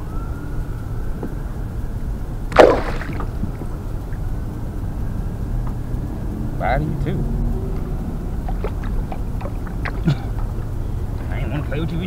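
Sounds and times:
low rumble: 0.0s - 12.0s
fish splash in water: 2.5s - 3.4s.

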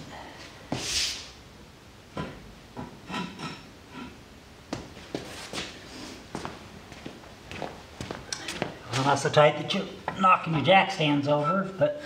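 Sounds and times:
short scraping hiss: 0.8s - 1.4s.

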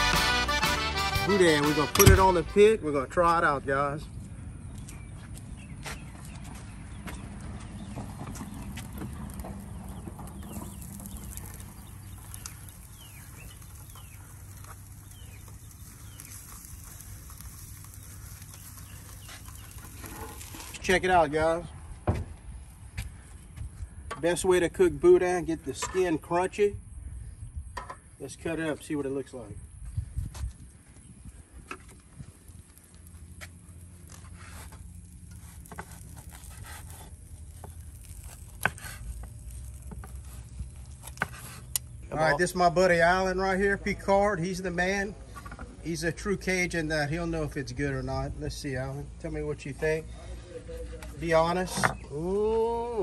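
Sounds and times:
birds chirping: 0.0s - 21.8s, 26.5s - 53.0s
sausages set on metal grill grate: 6.7s - 26.7s, 27.6s - 53.0s
knife slicing crisp sausage: 35.4s - 41.8s.

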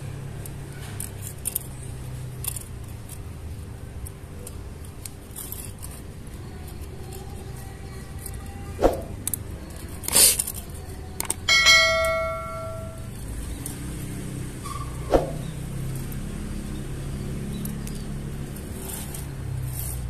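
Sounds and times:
bright bell-like chime: 11.5s - 13.1s
low steady hum: 11.5s - 13.2s.

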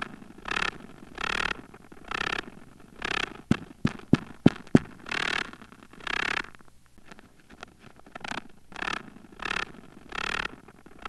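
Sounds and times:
spider buzzy pulses: 0.0s - 11.0s.

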